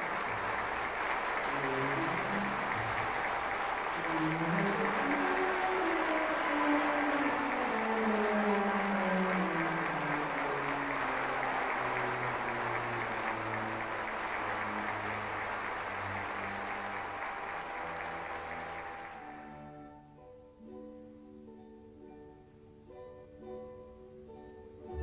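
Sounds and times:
audience applauding: 0:00.0 - 0:19.8
slow instrumental music: 0:00.0 - 0:25.0.

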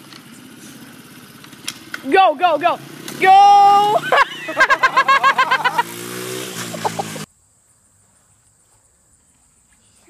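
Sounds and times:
dirt bike engine revving: 0:00.0 - 0:07.3
loud excited yelling: 0:02.1 - 0:05.9.

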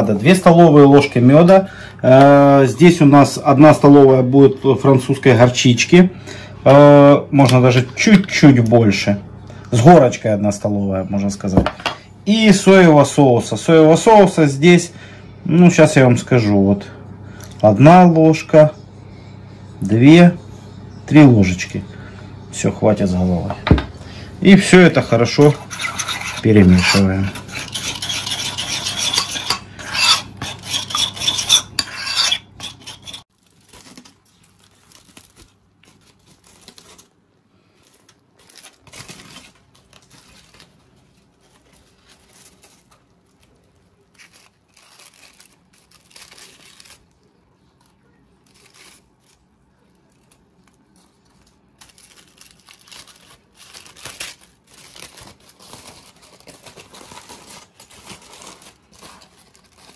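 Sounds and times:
aluminium foil crinkling: 0:24.7 - 0:31.8, 0:32.7 - 0:59.9.

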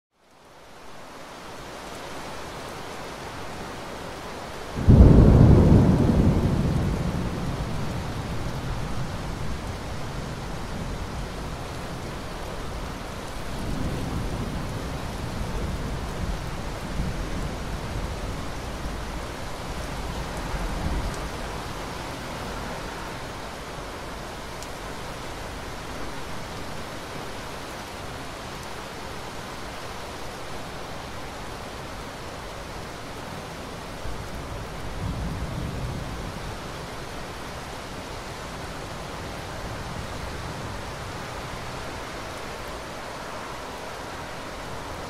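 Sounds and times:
steady rain: 0:00.1 - 0:45.0
thunder rumbling: 0:04.8 - 0:11.6.

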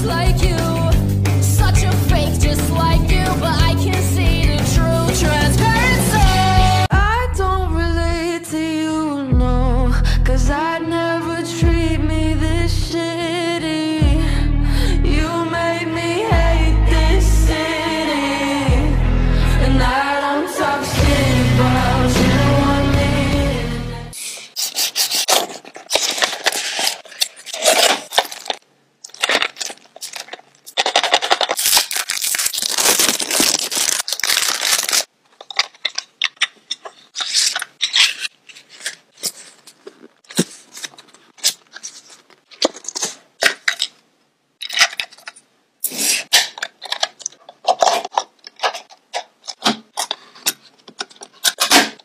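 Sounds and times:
packaging rustling and tearing: 0:24.6 - 0:44.0
plastic clicks and scrapes: 0:24.8 - 0:31.6, 0:35.3 - 0:44.0, 0:46.1 - 0:52.0.

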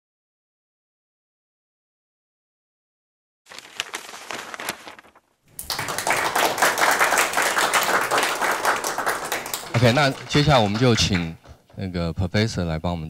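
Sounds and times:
audience applauding: 0:05.5 - 0:11.5.

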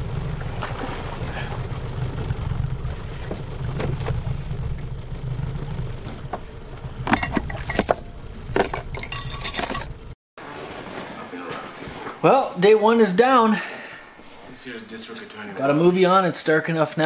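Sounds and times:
outboard motor idling: 0:00.0 - 0:10.2
clinks and knocks of hard objects: 0:02.9 - 0:05.6, 0:07.0 - 0:10.1.

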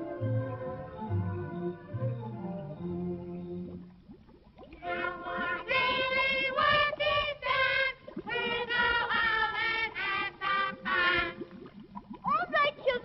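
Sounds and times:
children's choir singing: 0:04.8 - 0:11.4.

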